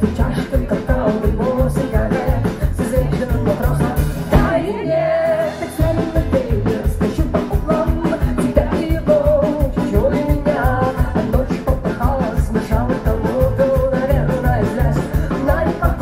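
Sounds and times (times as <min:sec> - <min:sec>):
drum kit: 0:00.0 - 0:16.0
electric bass: 0:00.0 - 0:16.0
person singing: 0:00.0 - 0:16.0
acoustic guitar strumming: 0:02.8 - 0:07.3.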